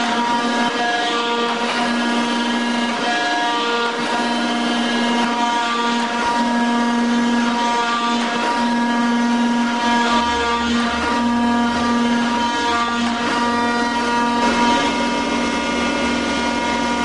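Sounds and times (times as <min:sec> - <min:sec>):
metal shaper humming and whining: 0:00.0 - 0:17.0.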